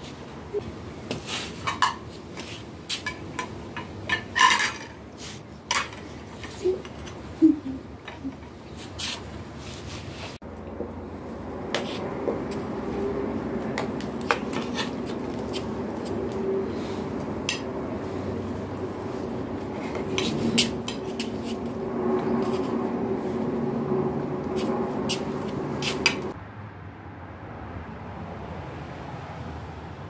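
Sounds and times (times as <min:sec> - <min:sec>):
cutlery clinking on plates: 0:01.6 - 0:02.1, 0:02.9 - 0:05.0, 0:05.7 - 0:06.6.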